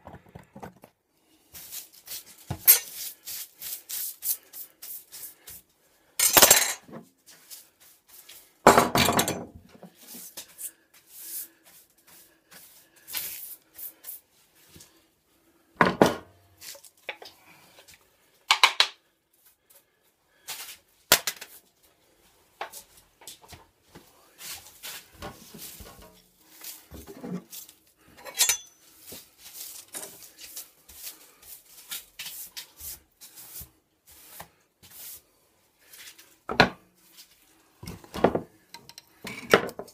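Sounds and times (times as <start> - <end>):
tools knocking and clinking: 8.7 - 9.6, 28.3 - 28.8
brushing across bench top: 24.4 - 27.8, 28.4 - 35.3.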